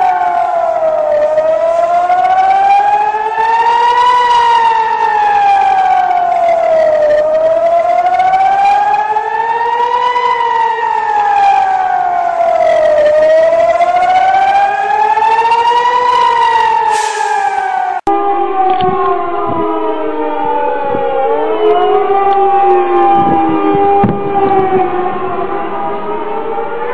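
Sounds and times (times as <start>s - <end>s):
air-raid siren wailing: 0.0s - 26.9s.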